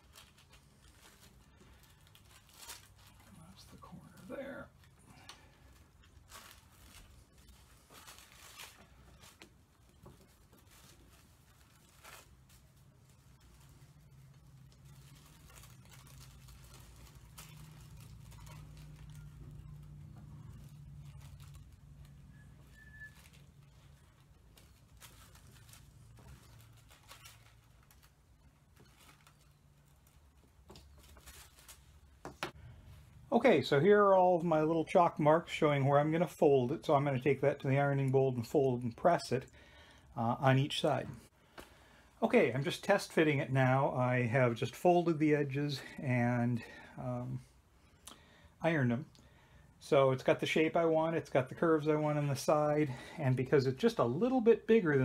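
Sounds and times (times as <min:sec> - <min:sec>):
paper rustling: 0:00.0 - 0:33.2
low steady hum: 0:00.0 - 0:55.0.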